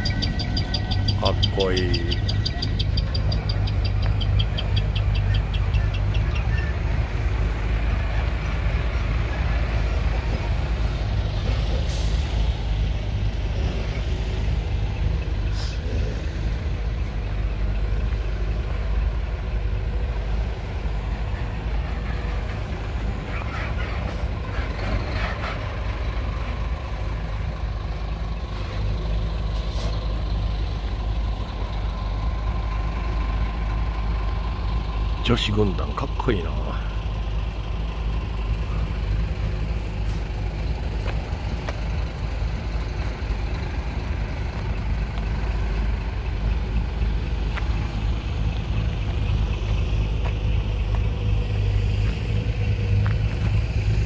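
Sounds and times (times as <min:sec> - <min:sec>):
diesel trucks idling: 0:00.0 - 0:54.0
air brake hisses: 0:11.8 - 0:12.4.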